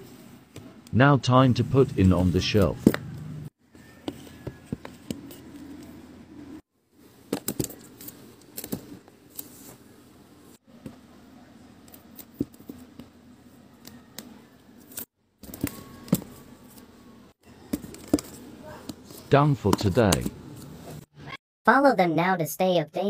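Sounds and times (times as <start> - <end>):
card album cases knocking: 17.7 - 19.0, 19.6 - 20.4.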